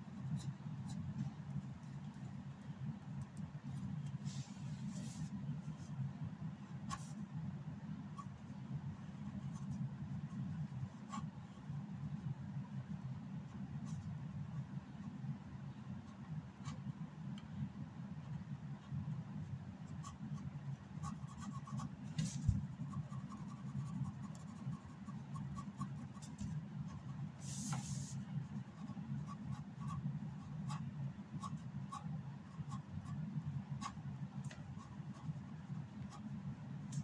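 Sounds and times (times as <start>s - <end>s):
steady low hum: 0.0s - 37.0s
pen scratching on paper: 19.9s - 34.0s, 34.6s - 35.4s.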